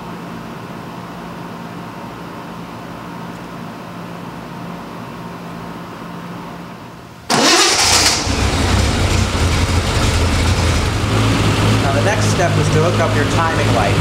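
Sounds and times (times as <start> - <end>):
car engine starting and idling: 7.3 - 14.0.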